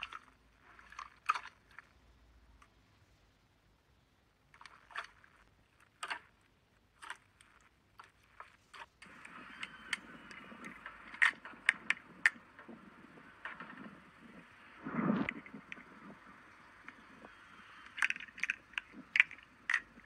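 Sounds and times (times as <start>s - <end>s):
slime squishing: 0.0s - 2.0s
steady hiss: 9.0s - 20.0s.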